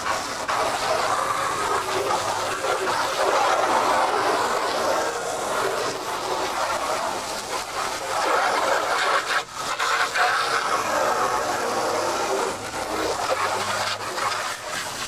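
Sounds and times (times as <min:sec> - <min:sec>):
hose spraying water on plastic: 0:00.0 - 0:15.0.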